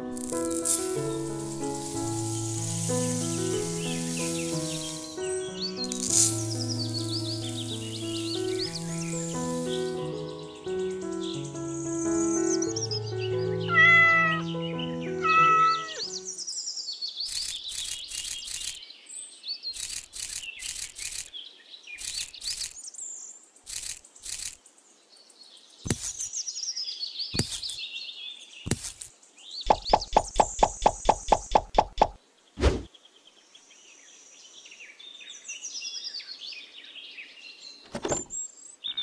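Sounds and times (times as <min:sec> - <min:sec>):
music: 0:00.0 - 0:16.4
birds chirping: 0:00.0 - 0:33.2
quick run of ticks: 0:05.9 - 0:08.0, 0:17.3 - 0:18.8, 0:19.7 - 0:21.4, 0:22.0 - 0:22.8, 0:23.6 - 0:24.6, 0:25.9 - 0:26.3, 0:27.4 - 0:27.8, 0:28.7 - 0:29.1, 0:29.7 - 0:32.9
sharp clicks and taps: 0:25.9 - 0:26.3, 0:29.7 - 0:32.2.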